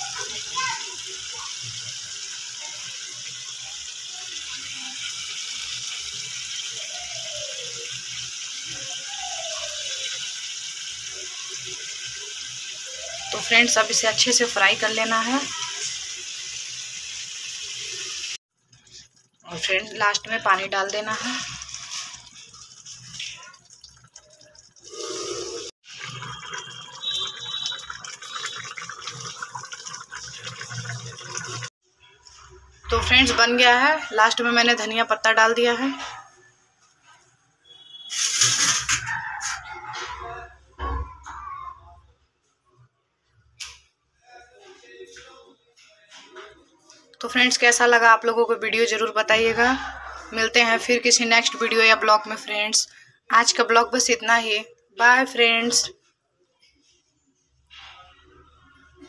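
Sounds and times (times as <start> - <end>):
chicken livers sizzling in oil: 0.0 - 31.7
water pouring into hot pan: 0.0 - 31.7, 38.1 - 39.0
high whistle: 37.6 - 38.4.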